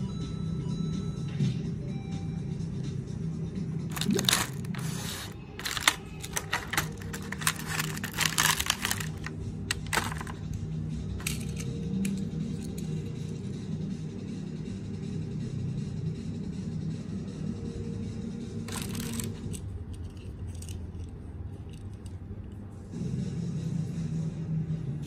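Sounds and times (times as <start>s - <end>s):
background music: 0.0s - 21.4s
plastic blister tray crinkling: 3.9s - 10.4s
toy cars clicking: 3.9s - 10.4s, 11.2s - 12.9s, 18.7s - 22.2s.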